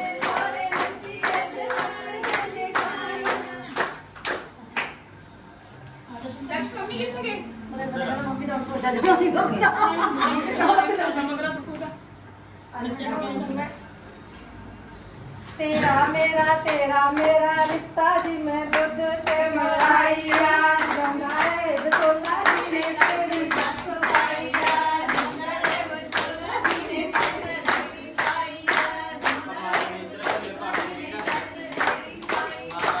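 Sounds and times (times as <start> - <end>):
rhythmic hand clapping: 0.0 - 5.1, 16.0 - 33.0.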